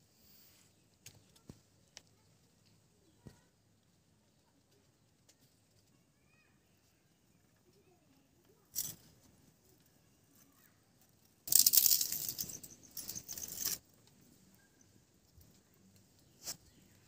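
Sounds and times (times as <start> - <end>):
wood and straw rustling and clattering: 8.1 - 14.3.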